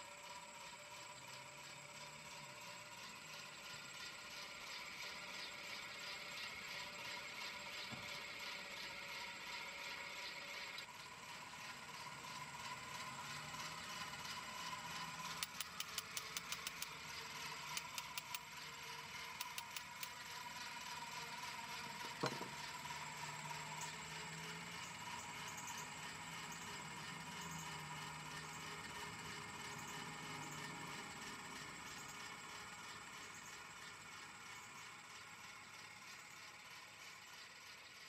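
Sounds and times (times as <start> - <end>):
clockwork fan motor whirring: 0.0 - 38.0
winding ratchet clicks: 0.5 - 27.1.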